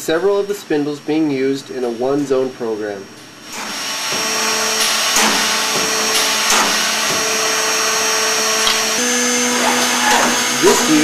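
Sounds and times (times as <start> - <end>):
drill bits cutting wood: 3.5 - 11.0
spindles whining: 3.6 - 11.0.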